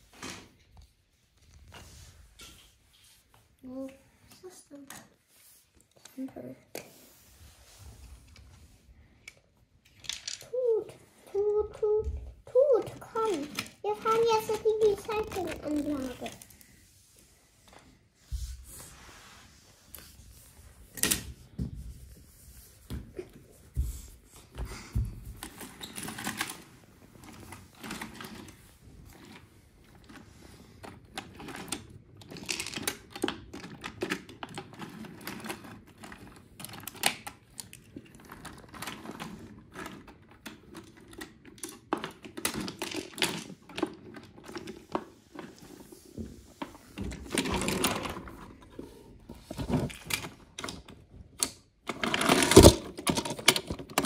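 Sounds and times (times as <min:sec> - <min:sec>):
wooden toy trains rolling on track: 0:09.2 - 0:16.6, 0:25.4 - 0:54.0.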